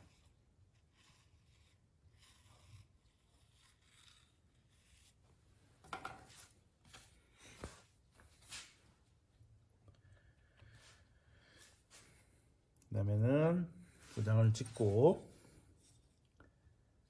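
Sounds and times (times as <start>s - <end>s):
tool scraping through clay: 0.0s - 5.2s.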